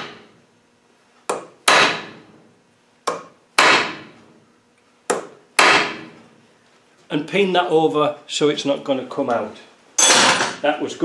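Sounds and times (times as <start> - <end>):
hammer striking metal punch: 1.3 - 2.2, 3.1 - 4.1, 5.1 - 6.1, 10.0 - 10.6.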